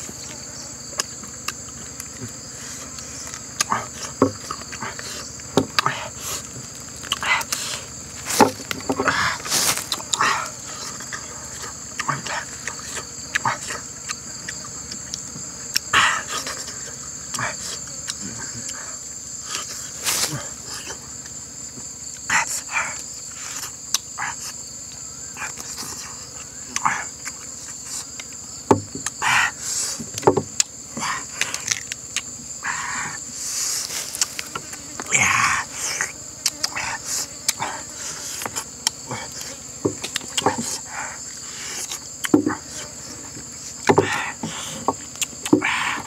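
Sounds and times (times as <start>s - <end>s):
man chewing and smacking: 0.0s - 18.8s, 23.6s - 29.2s, 30.0s - 32.4s, 33.2s - 35.0s, 38.3s - 43.9s, 44.6s - 45.6s
insect chorus: 0.0s - 46.0s.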